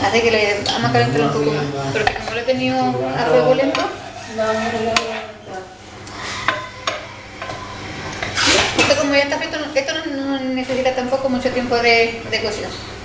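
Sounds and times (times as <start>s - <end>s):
utensil stirring thick mixture: 1.8s - 5.6s.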